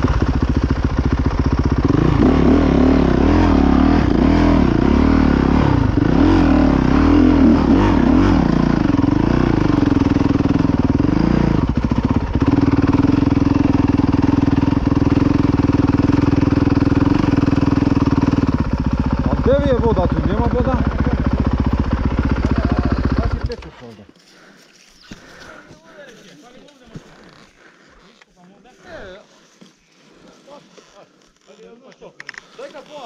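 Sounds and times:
dirt bike engine revving: 0.0 - 23.6.

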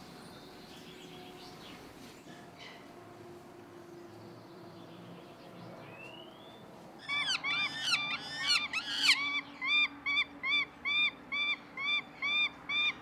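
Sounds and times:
falcon chicks shrill calls: 7.0 - 13.0.

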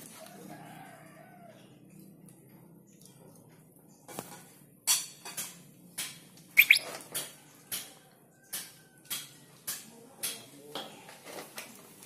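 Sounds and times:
bird chirping: 6.6 - 6.9.

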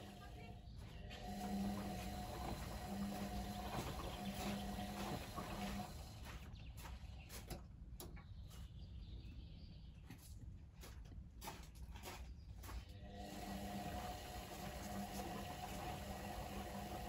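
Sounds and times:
washing machine drum motor hum: 0.0 - 6.5, 12.9 - 17.0.

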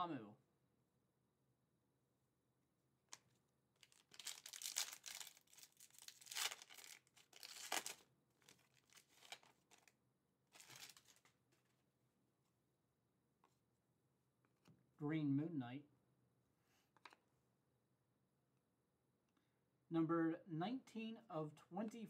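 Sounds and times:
foil wrapper tearing and crinkling: 3.8 - 9.9, 10.6 - 11.3.

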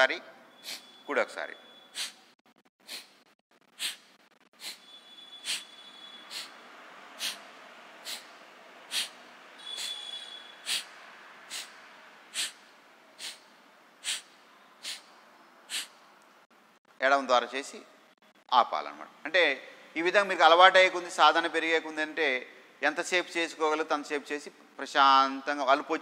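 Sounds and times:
forceful exhalations through nose: 2.0 - 4.8, 5.4 - 6.6, 7.2 - 10.0, 10.6 - 15.1, 15.7 - 16.0.

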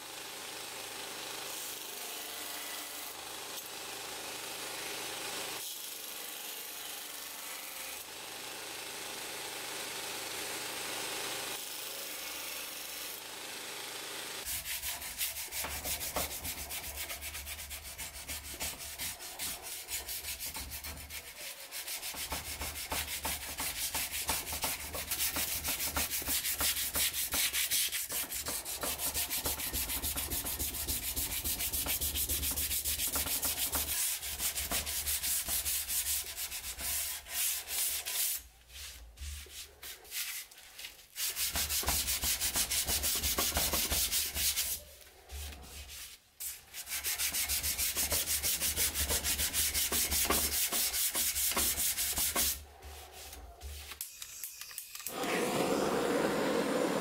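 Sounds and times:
hand sanding steel blade: 14.4 - 54.1.

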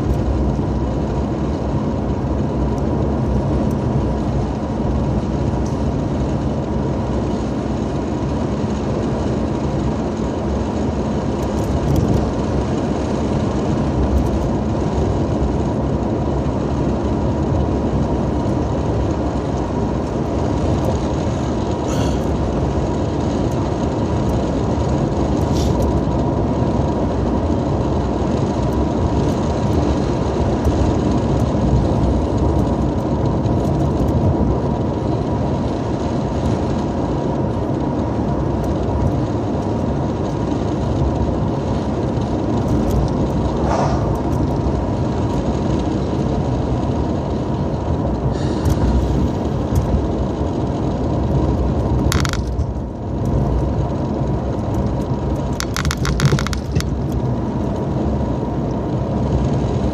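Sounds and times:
car cabin road and engine rumble: 0.0 - 59.9
short rattles: 55.6 - 57.0.

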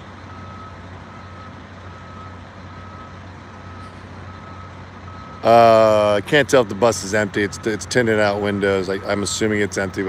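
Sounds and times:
idling engine hum: 0.0 - 10.0
reversing alarm beeping: 0.2 - 6.1.

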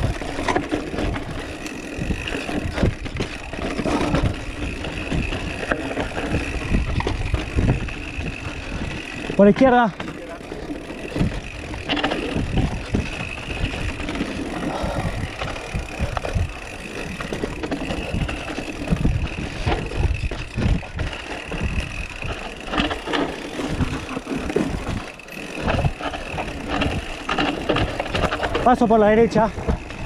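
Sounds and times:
bike rattles and knocks: 0.0 - 30.0
wind rumbling on microphone: 0.0 - 30.0.

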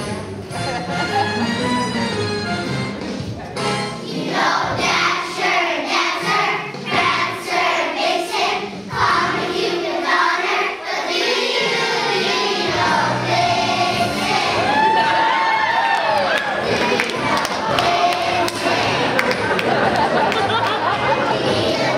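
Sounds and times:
instrumental backing track: 0.0 - 10.3
children's choir singing: 4.0 - 21.9.

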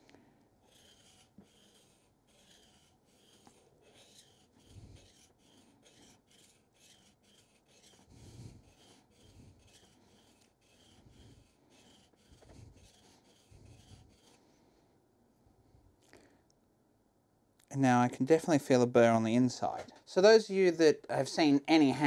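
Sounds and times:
gouge scraping on whetstone: 0.6 - 14.5.

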